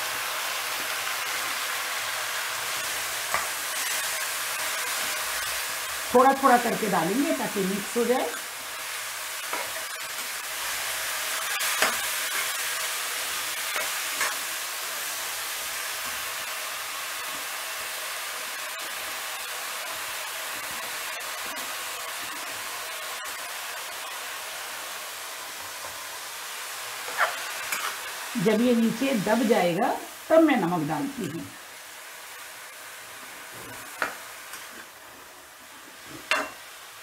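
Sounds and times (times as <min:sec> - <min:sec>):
greens sizzling in hot oil: 0:00.0 - 0:37.0.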